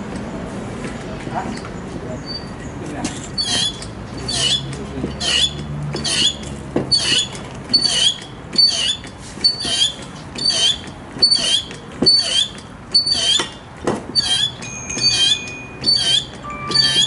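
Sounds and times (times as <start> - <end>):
hydraulic pump strokes: 3.1 - 17.0
short high squeak: 3.4 - 13.6, 14.2 - 17.0.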